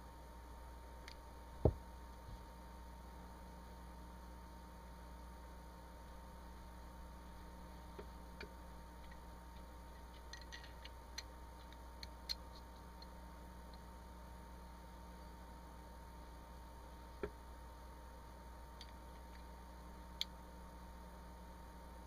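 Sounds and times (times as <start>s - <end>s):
low hum: 0.0s - 22.0s
dull thump: 1.6s - 1.8s
small metal parts clicking: 9.0s - 13.1s.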